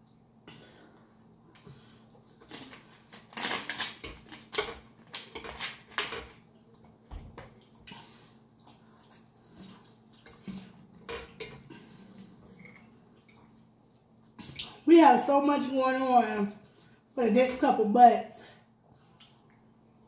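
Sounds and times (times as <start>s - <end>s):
chewing and mouth smacking: 6.6s - 11.0s.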